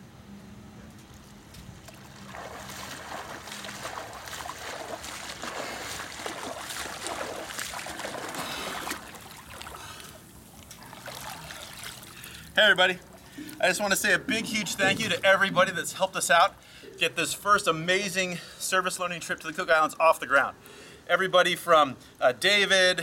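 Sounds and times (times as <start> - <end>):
swimming strokes splashing water: 1.8 - 16.8.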